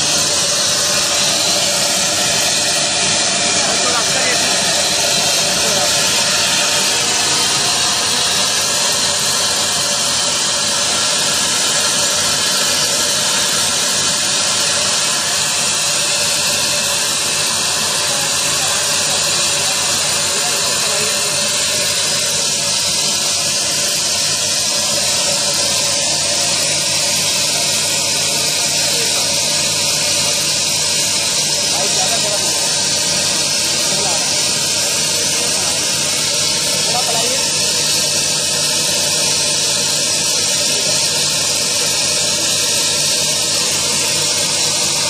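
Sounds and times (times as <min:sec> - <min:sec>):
plasma torch cutting steel pipe: 0:00.0 - 0:45.0.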